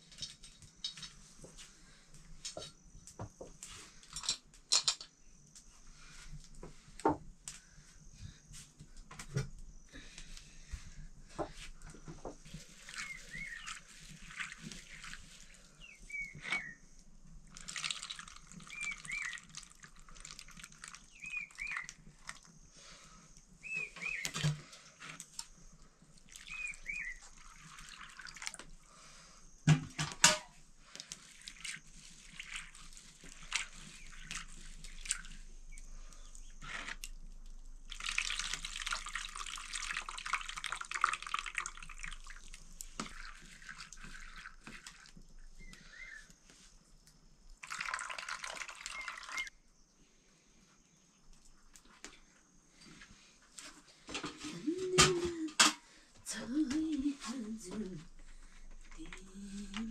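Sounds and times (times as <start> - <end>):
water splashing and dripping: 12.5 - 16.6, 17.4 - 22.5, 26.1 - 28.8, 30.9 - 35.4, 36.3 - 45.3, 47.6 - 49.5.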